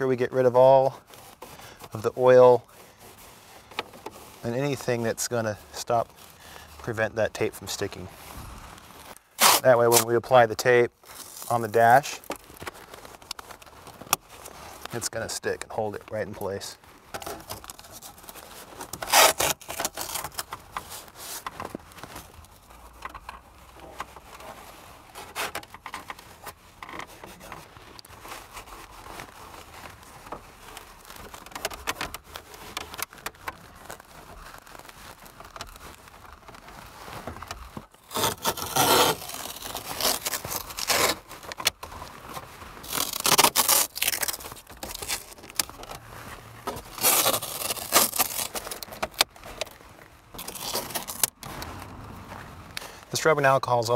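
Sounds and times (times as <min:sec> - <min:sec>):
cloth rubbing on plastic: 0:00.2 - 0:53.2
tape ripping off roll: 0:08.4 - 0:10.2, 0:17.1 - 0:53.0.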